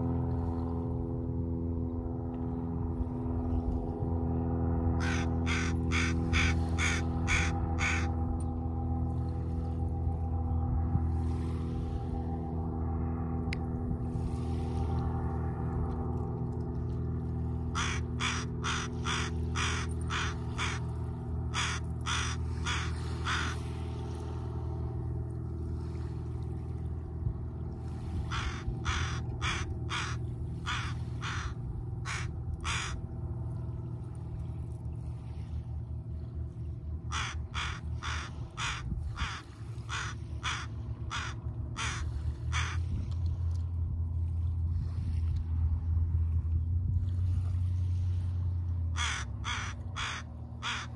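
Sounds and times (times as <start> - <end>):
steady low rumble: 0.0 - 50.9
crows cawing: 5.0 - 8.2, 17.6 - 24.0, 28.1 - 33.1, 37.1 - 42.9, 48.9 - 50.9.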